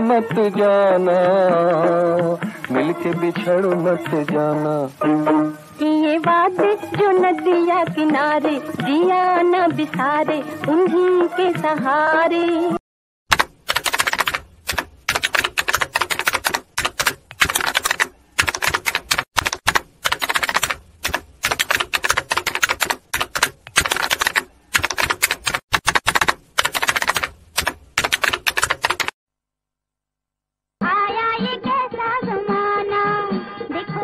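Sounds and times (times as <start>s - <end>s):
typewriter key clacks: 13.3s - 29.2s.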